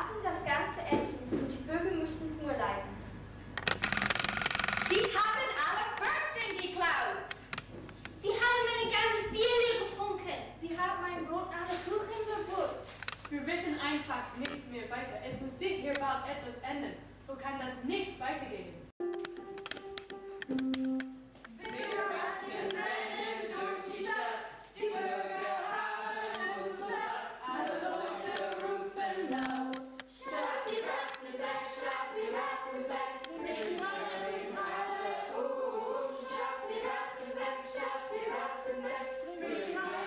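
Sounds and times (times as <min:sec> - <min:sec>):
children singing in chorus: 0:21.6 - 0:40.0.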